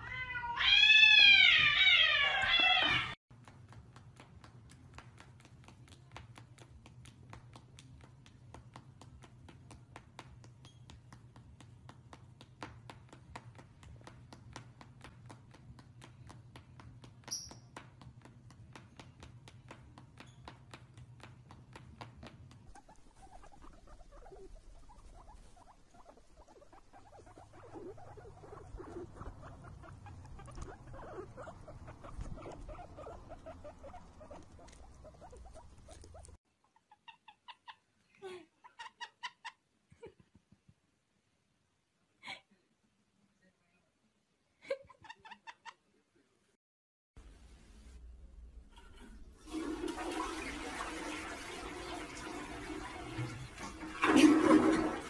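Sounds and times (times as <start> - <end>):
cat meowing: 0.0 - 3.2
faint rapid clicks: 3.4 - 25.6.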